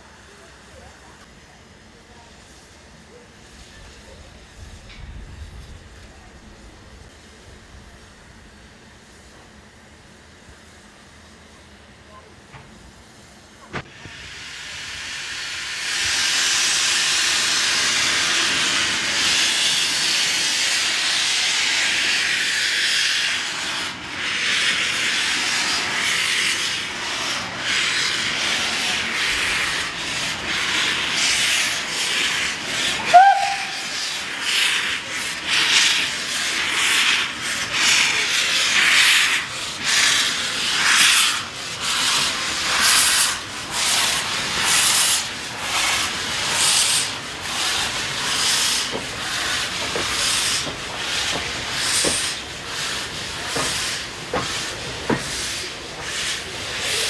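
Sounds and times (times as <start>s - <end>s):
steam locomotive hissing: 0.0s - 57.0s
locomotive exhaust chuffs: 12.8s - 57.0s
brief shrill tone: 33.1s - 33.9s.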